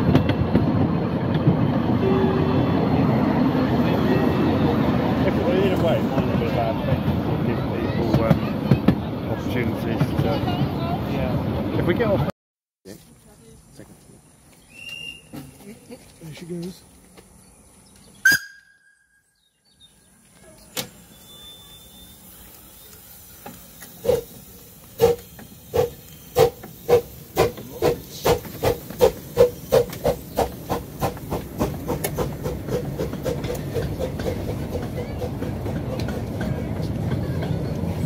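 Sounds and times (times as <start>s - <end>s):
train rumble: 0.0s - 12.3s, 20.1s - 38.0s
short sharp whistle sound: 14.7s - 15.4s, 18.2s - 19.4s
steam locomotive exhaust beats: 20.9s - 38.0s.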